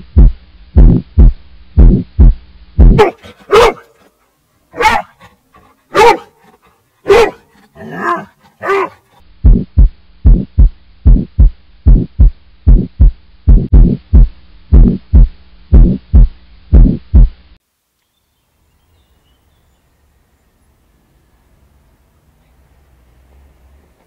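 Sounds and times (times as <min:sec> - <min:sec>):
heartbeat sound effect: 0:00.0 - 0:03.0, 0:09.4 - 0:17.4
dog barking loudly: 0:03.0 - 0:04.1, 0:04.7 - 0:05.3, 0:05.9 - 0:09.1.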